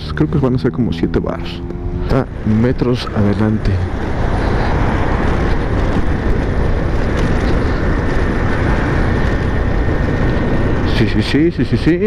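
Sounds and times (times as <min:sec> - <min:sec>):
wind rush while riding: 0:00.0 - 0:12.0.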